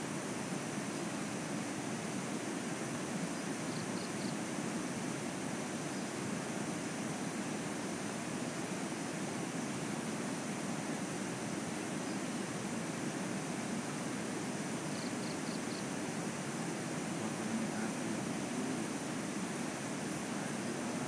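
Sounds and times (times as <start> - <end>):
steady rushing noise: 15.9 - 21.0.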